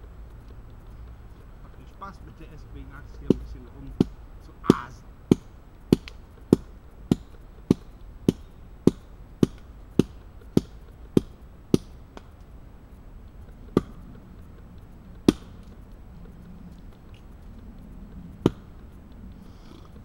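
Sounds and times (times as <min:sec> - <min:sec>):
axe chopping wood: 0:03.3 - 0:12.3, 0:15.2 - 0:15.6, 0:18.4 - 0:18.6.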